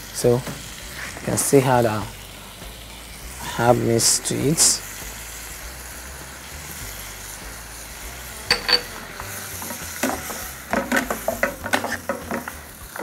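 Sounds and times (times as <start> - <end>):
vegetables sizzling in frying pan: 0.0 - 13.0
metal spoon clinking on pan: 8.5 - 9.0
spoon scraping pan: 8.5 - 13.0.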